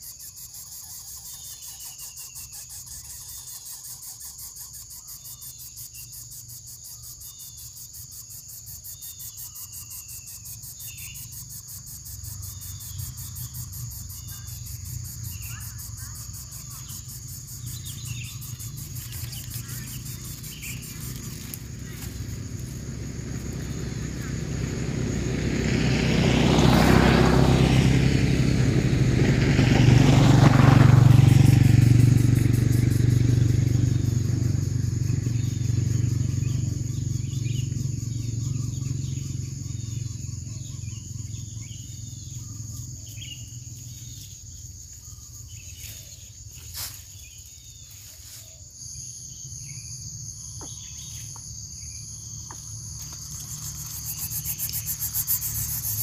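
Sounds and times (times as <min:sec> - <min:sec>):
motor vehicle passing: 0:10.6 - 0:44.6, 0:49.7 - 0:56.0.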